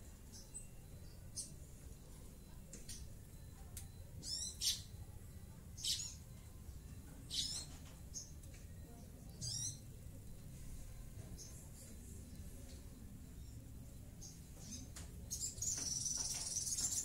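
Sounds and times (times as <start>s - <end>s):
bird chirping in harsh bursts: 4.2s - 5.0s, 5.7s - 6.4s, 7.2s - 8.4s, 9.3s - 9.9s, 13.3s - 17.0s.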